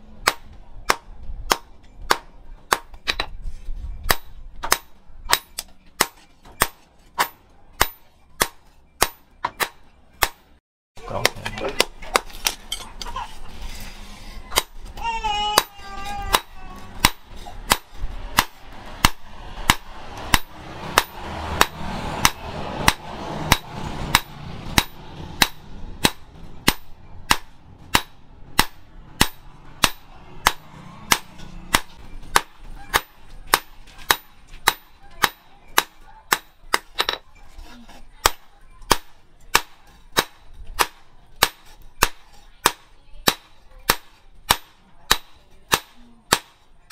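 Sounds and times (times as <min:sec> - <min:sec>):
hammer striking metal on anvil: 0:00.2 - 0:03.4, 0:04.1 - 0:10.5, 0:15.4 - 0:37.2.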